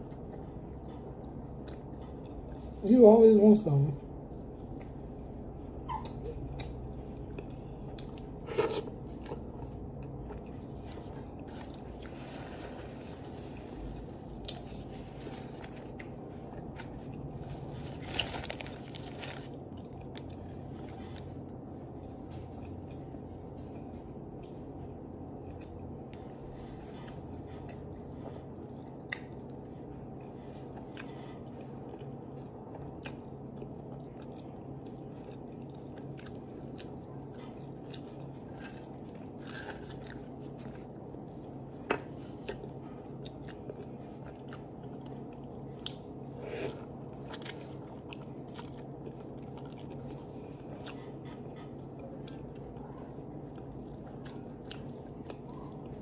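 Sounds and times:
person chewing a sandwich: 0.0 - 2.8, 4.4 - 56.0
steady low hum: 0.0 - 56.0.

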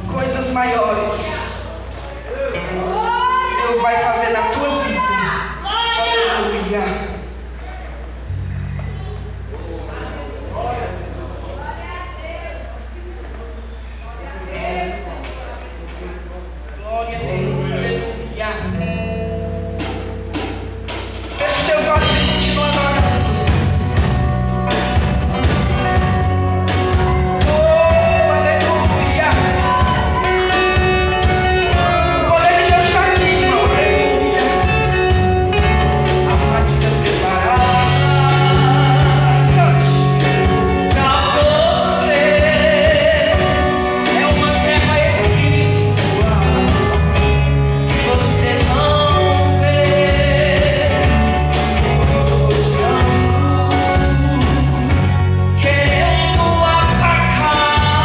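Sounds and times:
live band playing: 0.0 - 9.6, 17.2 - 58.0
woman singing: 37.1 - 40.0, 40.8 - 47.0, 47.9 - 55.0, 55.6 - 58.0.

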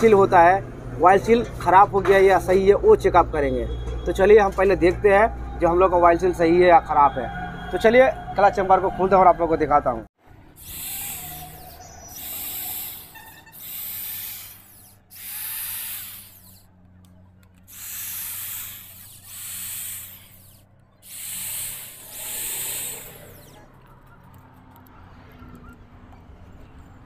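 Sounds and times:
electric screwdriver whirring: 10.6 - 16.7, 17.6 - 23.7.

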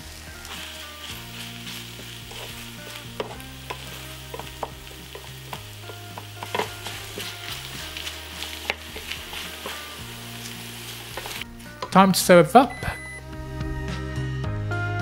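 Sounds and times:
food sizzling in a frying pan: 0.0 - 12.0
spatula scraping a pan: 0.5 - 11.9.

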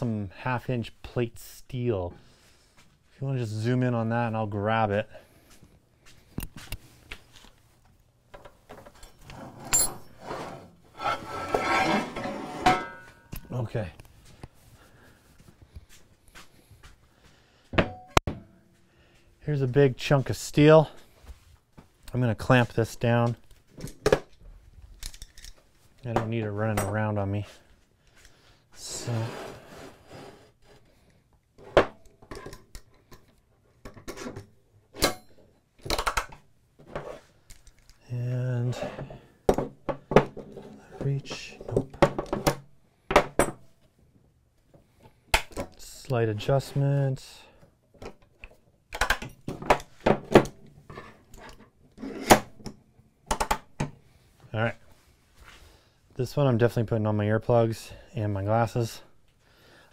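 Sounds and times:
steel plate scraping: 9.2 - 13.3.

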